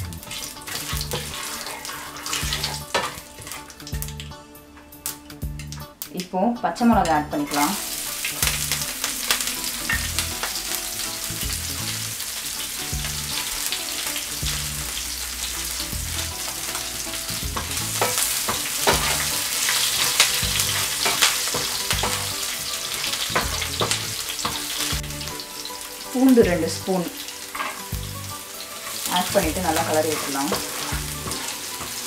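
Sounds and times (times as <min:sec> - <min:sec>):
sharp popping in oil: 0:00.0 - 0:04.4, 0:07.0 - 0:25.8
chillies sizzling in hot oil: 0:00.0 - 0:32.0.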